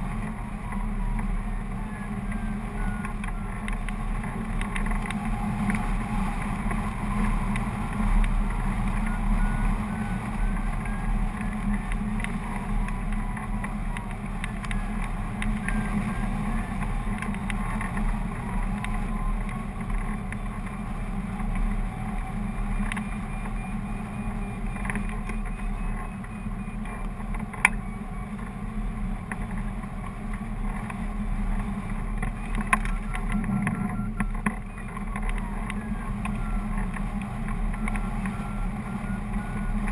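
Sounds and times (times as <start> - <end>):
faint rapid beeping: 0.0 - 39.9
wind rushing over camera: 0.0 - 39.9
sharp ticks: 0.1 - 39.9.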